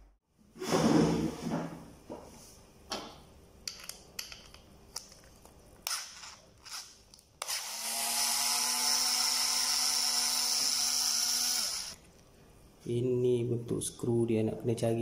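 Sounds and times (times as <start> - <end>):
electric screwdriver whining: 5.9 - 12.0.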